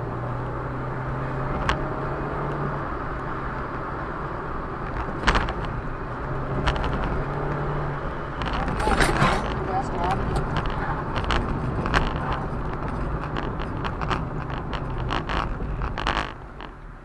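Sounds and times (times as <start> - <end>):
car engine hum: 0.0 - 17.0
tyre rumble: 8.4 - 16.7.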